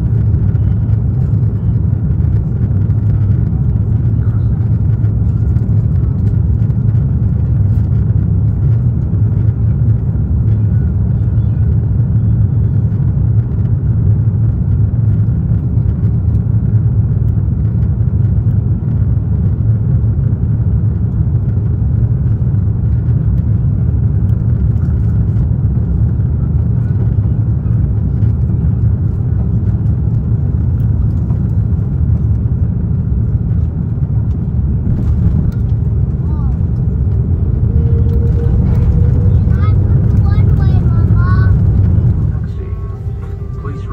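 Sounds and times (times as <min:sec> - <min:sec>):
deep rumble of aircraft engines: 0:00.0 - 0:43.9
faint steady whine: 0:33.3 - 0:43.9.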